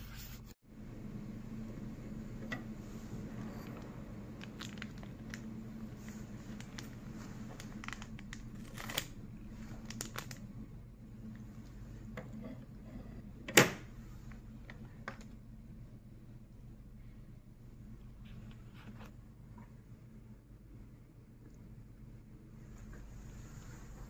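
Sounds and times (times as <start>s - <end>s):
steady low hum: 0.0s - 24.0s
foil wrapper crinkling and tearing: 4.4s - 5.5s, 6.4s - 9.2s, 9.8s - 10.4s.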